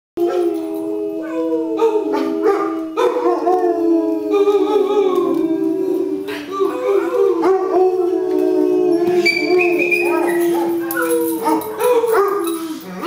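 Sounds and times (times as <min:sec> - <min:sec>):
dogs howling: 0:00.2 - 0:13.0.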